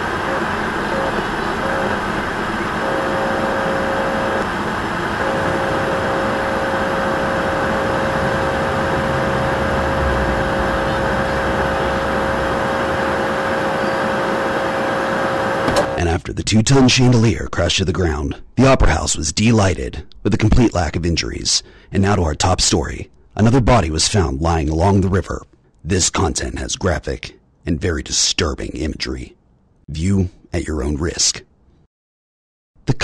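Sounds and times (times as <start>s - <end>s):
television static hiss: 0.0s - 16.0s.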